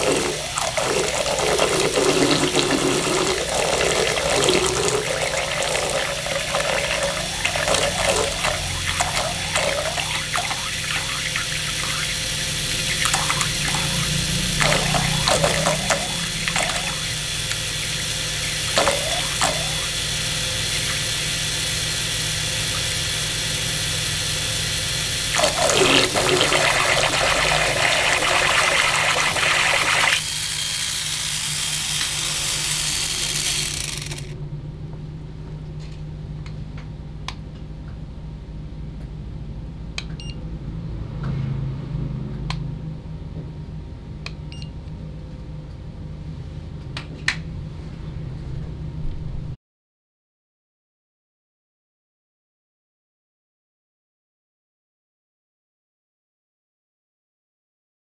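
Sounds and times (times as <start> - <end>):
water churning and splashing: 0.0 - 20.0, 25.3 - 30.2
small motor humming: 0.0 - 34.4.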